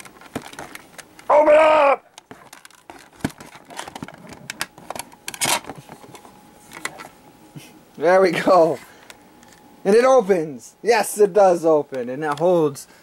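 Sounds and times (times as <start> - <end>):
hard plastic clicking and rattling: 0.0 - 1.3, 2.2 - 7.0.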